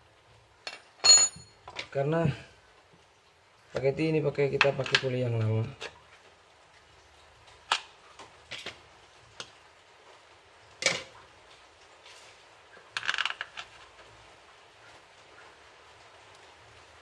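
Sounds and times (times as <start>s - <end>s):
hard metal parts clinking: 0.7s - 1.5s.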